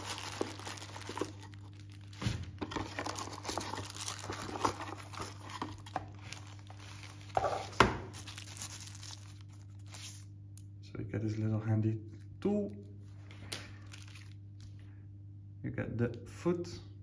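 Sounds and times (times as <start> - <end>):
plastic bags crinkling: 0.0 - 10.3, 13.4 - 14.8.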